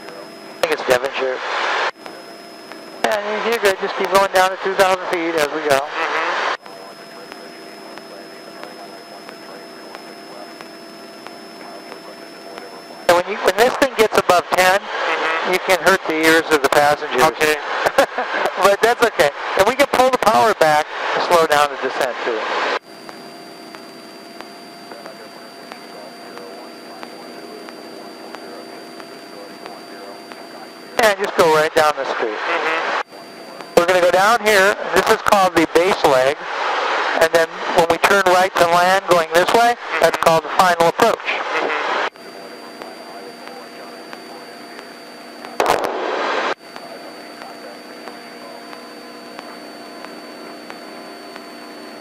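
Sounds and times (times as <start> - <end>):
airplane engine drone: 0.0 - 52.0
burst of static hiss: 16.3 - 52.0.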